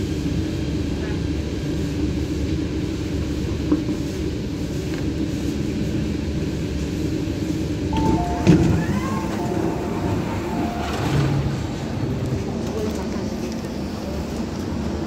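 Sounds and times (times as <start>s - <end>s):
train interior rumble and hum: 0.0s - 15.0s
two-tone electronic chime: 8.0s - 11.6s.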